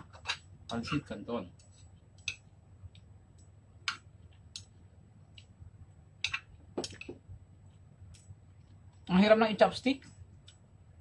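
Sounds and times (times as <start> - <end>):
metal chopsticks clicking on ceramic bowl: 2.2 - 2.5.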